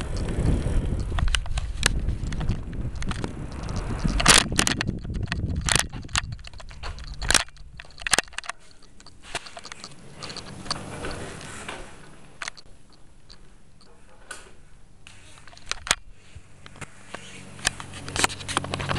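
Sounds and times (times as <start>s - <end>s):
faint rustling: 0.0s - 18.9s
camera handling knocks and clicks: 4.0s - 10.4s.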